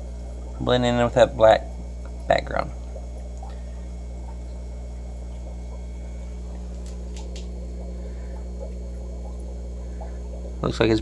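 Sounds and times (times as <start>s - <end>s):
aquarium pumps humming: 0.0s - 11.0s
faint ticks: 2.0s - 10.6s.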